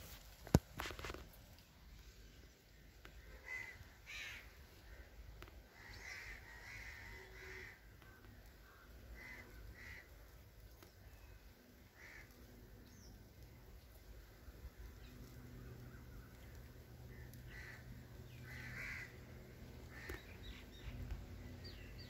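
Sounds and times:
low background rumble: 1.6s - 22.0s
harsh bird calls: 3.1s - 10.2s, 15.8s - 22.0s.

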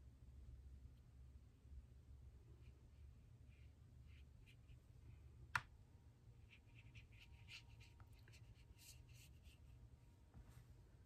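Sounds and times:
brush strokes on paper: 2.5s - 5.3s, 6.3s - 10.8s.

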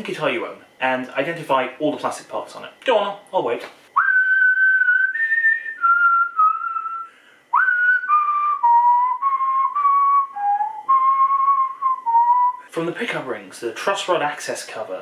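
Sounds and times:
man whistling slow tune: 4.0s - 12.7s.

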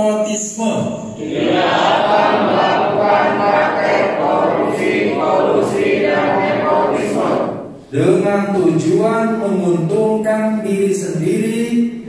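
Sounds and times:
leader reading aloud: 0.0s - 12.0s
crowd reciting in unison: 1.0s - 8.5s.

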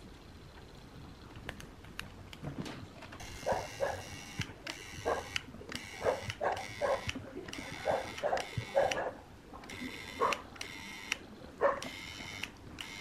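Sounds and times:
dog barking: 3.4s - 4.1s, 5.0s - 5.4s, 6.0s - 7.1s, 7.8s - 9.2s, 10.2s - 10.4s, 11.6s - 11.9s.

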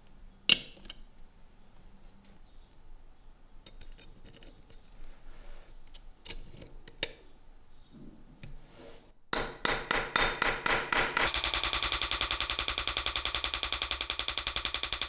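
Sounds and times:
loud evenly spaced knocks: 9.3s - 15.0s.

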